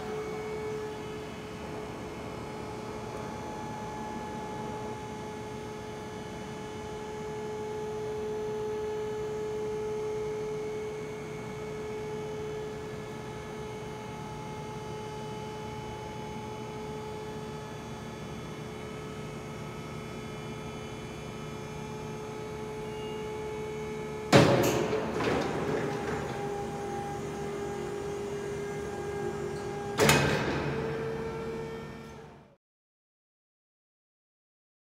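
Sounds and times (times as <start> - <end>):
loud clunk and rattle: 24.3 - 28.0, 29.5 - 31.1.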